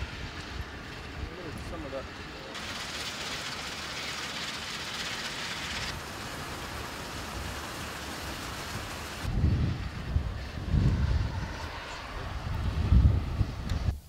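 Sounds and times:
combine harvester rumbling: 0:00.0 - 0:12.6
wind buffeting microphone: 0:08.5 - 0:14.0.

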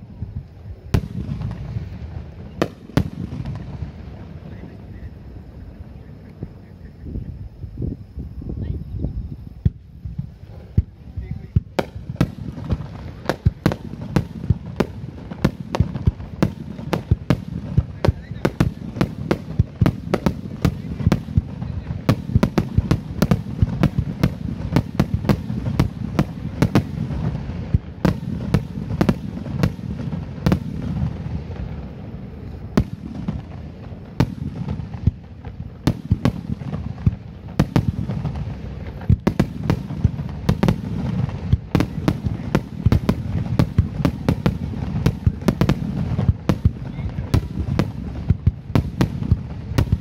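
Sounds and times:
continuous low rumble: 0:00.0 - 0:50.0
fireworks bangs and crackles: 0:00.0 - 0:50.0
fireworks launching: 0:00.0 - 0:50.0.

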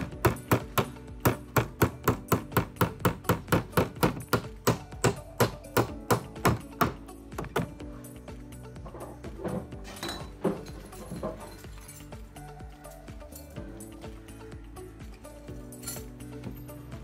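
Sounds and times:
claw hammer striking: 0:00.2 - 0:07.0.

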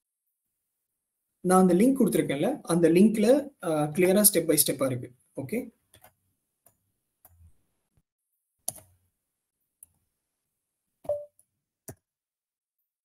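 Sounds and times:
computer mouse and keyboard clicks: 0:05.9 - 0:07.5, 0:08.6 - 0:09.0.

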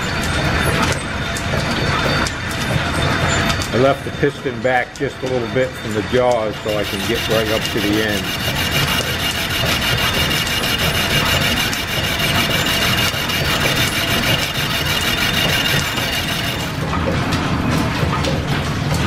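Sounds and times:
machinery ticking: 0:05.0 - 0:17.0
metal lathe scraping cut: 0:05.8 - 0:16.8.

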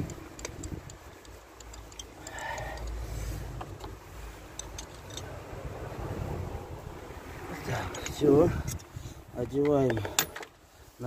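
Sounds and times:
wind rumble on microphone: 0:00.0 - 0:01.2, 0:05.1 - 0:09.7
hand ratchet clicking: 0:00.0 - 0:03.0.

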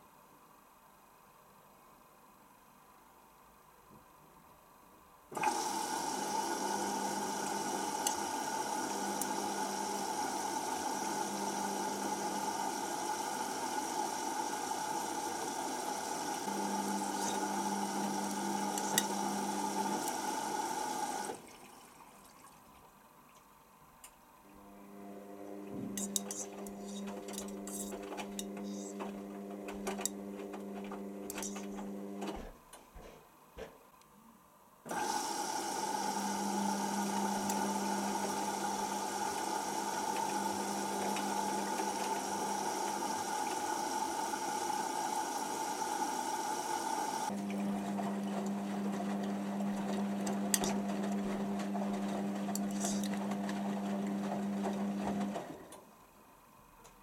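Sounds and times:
steady hiss and hum: 0:00.0 - 0:05.4, 0:06.7 - 0:34.9, 0:55.6 - 0:57.0.

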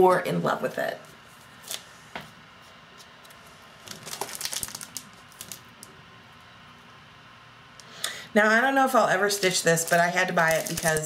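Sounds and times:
plastic sleeves crinkling: 0:03.2 - 0:05.9, 0:09.3 - 0:11.0.

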